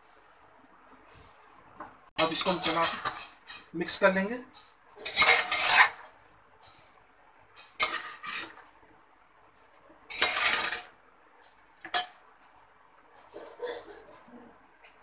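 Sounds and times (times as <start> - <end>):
metal spatula scraping a pot: 2.2 - 3.7, 4.5 - 7.0, 7.6 - 8.8, 10.1 - 12.2.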